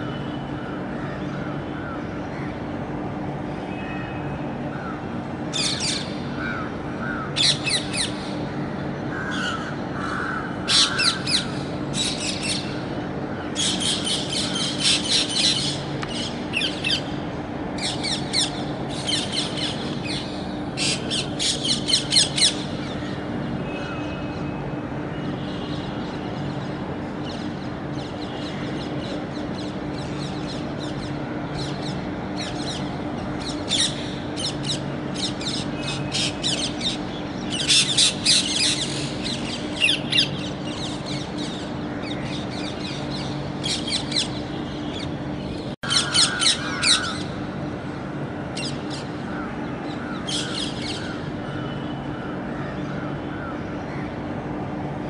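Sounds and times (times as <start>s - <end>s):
parakeets squawking: 5.5s - 8.3s, 9.1s - 12.8s, 13.6s - 17.1s, 17.8s - 23.2s, 31.6s - 45.1s, 45.8s - 47.4s, 48.6s - 51.7s.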